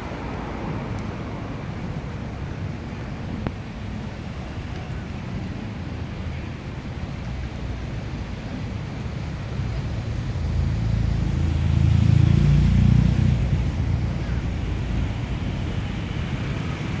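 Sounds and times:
traffic noise: 0.0s - 17.0s
motor vehicle passing: 10.2s - 17.0s.

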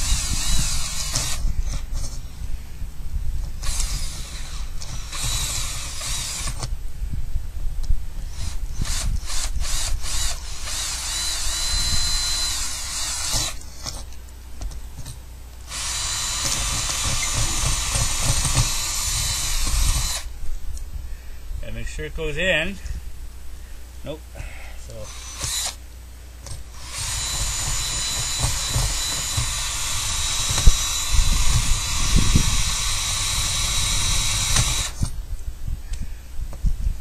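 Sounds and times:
electric drill boring through wall: 0.0s - 2.2s, 3.6s - 6.7s, 8.3s - 14.0s, 15.7s - 20.3s, 25.0s - 25.8s, 26.5s - 35.2s.

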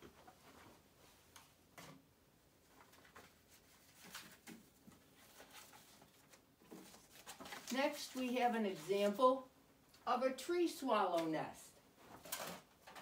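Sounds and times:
paper rustling: 2.6s - 9.2s.

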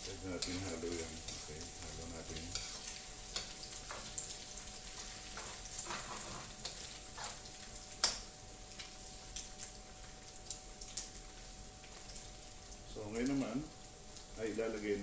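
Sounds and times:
utensil scraping a pan: 0.0s - 4.1s, 4.9s - 7.5s
eggs sizzling in a pan: 0.0s - 15.0s.

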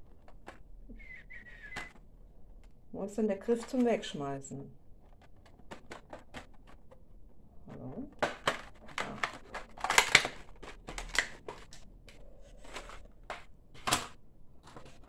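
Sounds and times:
plastic packaging crinkling: 8.1s - 15.0s.

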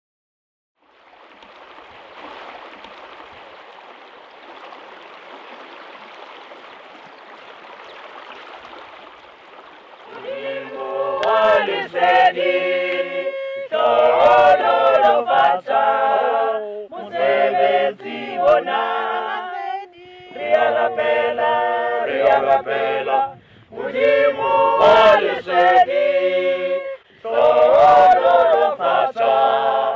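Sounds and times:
stream water flowing: 0.8s - 13.3s
choir singing a cappella: 10.1s - 29.9s.

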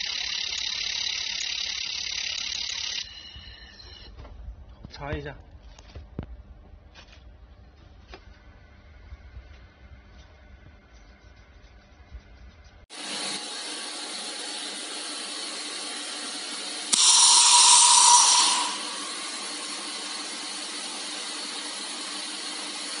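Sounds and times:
laser welding machine hiss: 13.0s - 23.0s.

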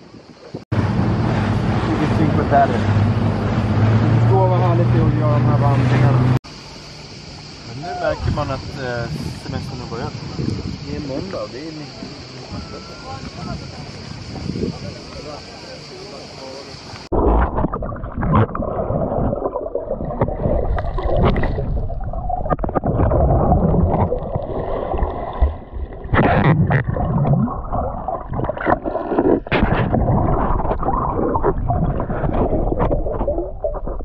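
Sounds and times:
underwater sloshing and gurgling: 16.7s - 34.0s
bubbling: 17.0s - 34.0s.

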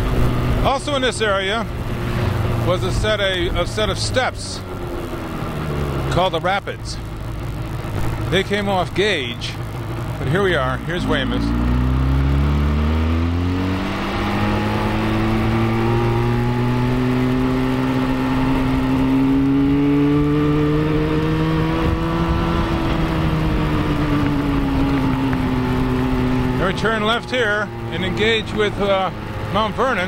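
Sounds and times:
motorcycle engine accelerating: 0.0s - 30.0s
wind buffeting microphone: 21.0s - 27.0s.

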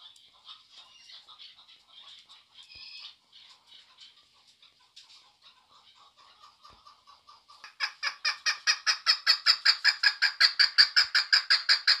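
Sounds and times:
partridge calling: 7.6s - 12.0s.

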